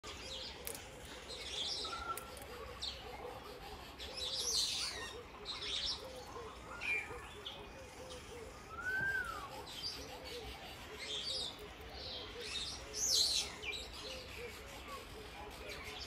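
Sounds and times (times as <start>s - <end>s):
birds chirping and whistling: 0.0s - 16.0s
low cooing: 6.0s - 12.5s.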